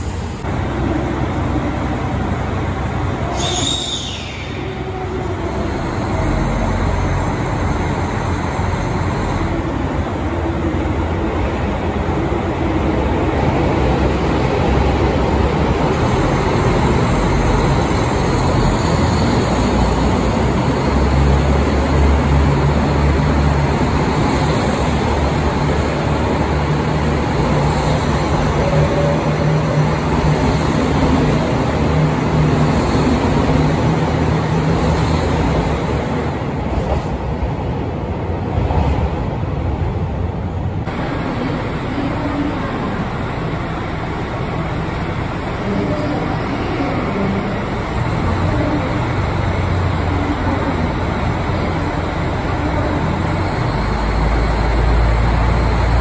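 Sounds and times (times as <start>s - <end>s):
diesel train engine drone: 0.0s - 56.0s.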